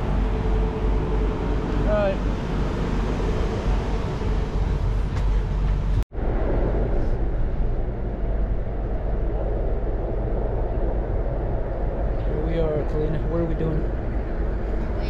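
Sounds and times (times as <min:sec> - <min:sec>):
metro train rumble and hiss: 0:00.0 - 0:09.4.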